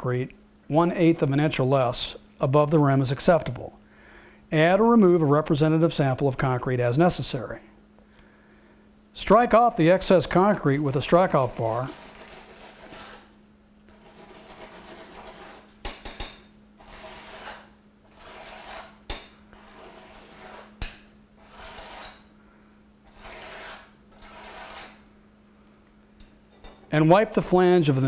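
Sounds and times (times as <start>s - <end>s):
metal bar scraping concrete: 11.3s - 13.3s, 13.9s - 15.7s, 16.8s - 20.8s, 21.4s - 22.3s, 23.1s - 25.0s.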